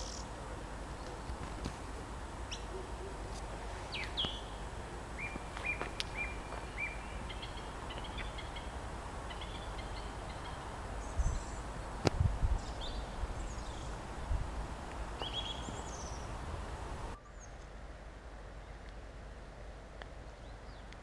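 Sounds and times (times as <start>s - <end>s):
birds chirping and calling: 0.0s - 1.5s, 2.4s - 11.9s, 12.5s - 14.3s, 15.1s - 16.4s
steady low rumble: 0.0s - 20.8s.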